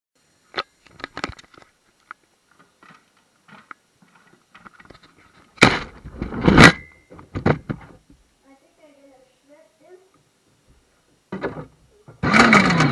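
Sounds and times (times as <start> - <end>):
plastic rattling and scraping: 0.9 - 8.0, 11.3 - 12.9.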